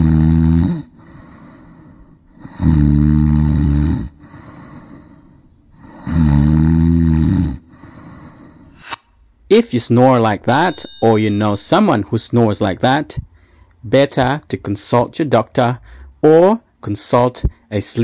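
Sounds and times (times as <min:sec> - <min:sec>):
person snoring: 0:00.0 - 0:01.0, 0:02.4 - 0:04.2, 0:05.8 - 0:07.7.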